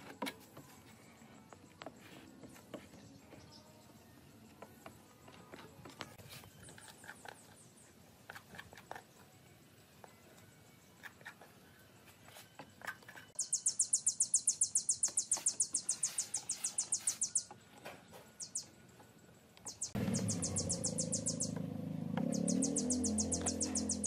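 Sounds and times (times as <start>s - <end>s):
small animal chirping trill: 13.3s - 17.6s, 18.4s - 18.8s, 19.7s - 24.0s
low background music: 18.4s - 24.0s.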